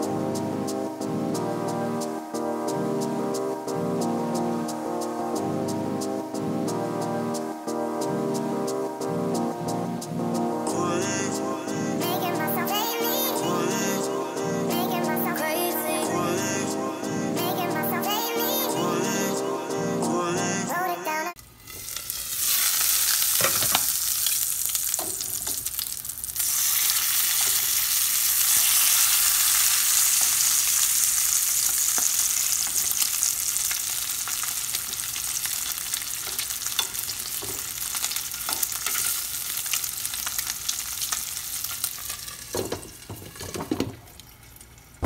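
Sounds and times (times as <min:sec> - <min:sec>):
bacon sizzling in a pan: 0:21.4 - 0:45.0.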